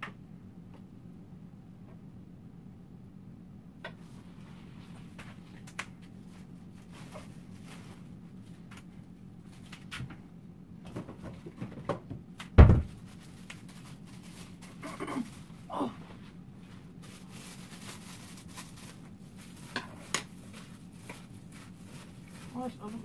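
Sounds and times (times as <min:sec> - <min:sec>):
door shutting with thump: 0:12.6 - 0:13.0.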